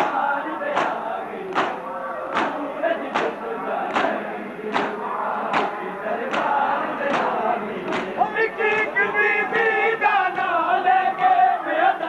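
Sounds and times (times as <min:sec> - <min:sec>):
hands slapping chests: 0:00.0 - 0:09.0
crowd of men chanting: 0:00.0 - 0:12.0.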